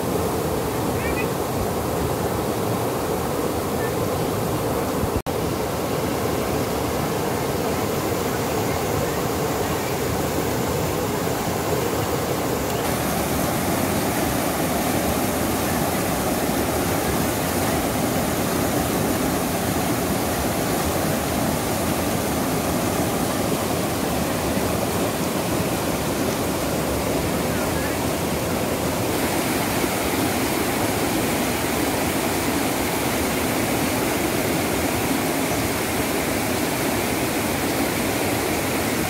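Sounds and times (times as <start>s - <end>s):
waterfall rushing over rocks: 0.0s - 39.0s.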